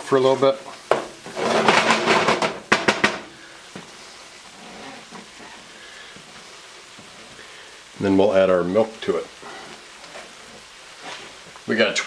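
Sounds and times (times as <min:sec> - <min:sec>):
roux sizzling faintly: 0:00.0 - 0:12.0
wooden spoon scraping pan: 0:00.6 - 0:07.5, 0:09.4 - 0:11.5
spoon knocking on pan: 0:00.9 - 0:01.2, 0:01.8 - 0:03.9.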